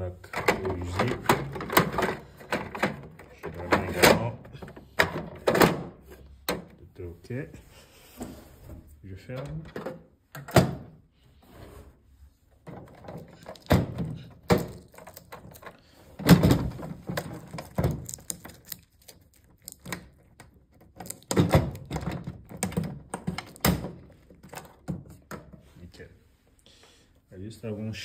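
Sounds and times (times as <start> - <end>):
plastic and metal knocks and clicks: 19.8 - 25.6.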